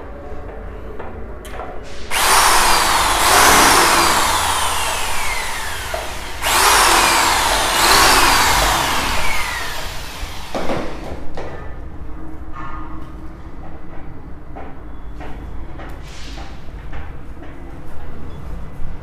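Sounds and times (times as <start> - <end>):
electric drill boring into wood: 2.1 - 11.1.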